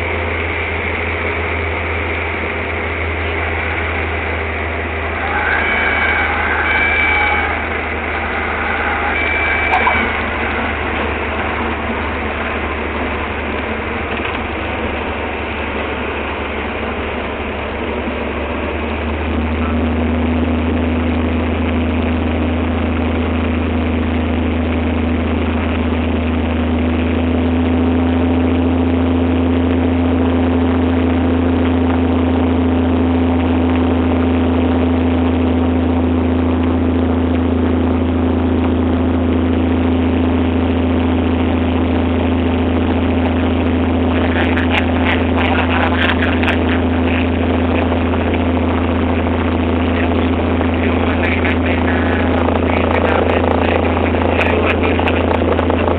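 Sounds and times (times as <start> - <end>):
light aircraft engine droning: 0.0 - 55.9
crackling: 0.3 - 17.0.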